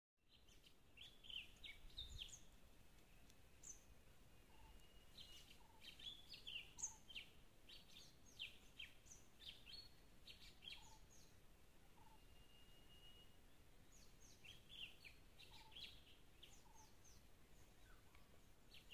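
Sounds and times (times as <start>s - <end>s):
faint birdsong chirps: 0.2s - 18.9s
thin steady high tone: 11.9s - 13.5s.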